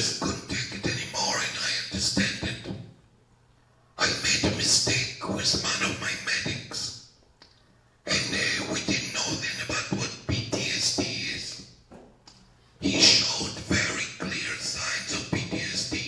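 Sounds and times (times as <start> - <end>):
man talking into microphone: 0.0 - 2.8, 4.0 - 7.0, 8.1 - 11.6, 12.8 - 16.0.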